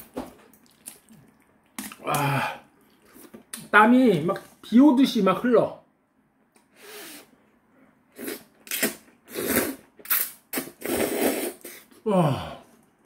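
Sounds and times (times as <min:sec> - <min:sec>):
person slurping noodles: 0:08.1 - 0:12.5.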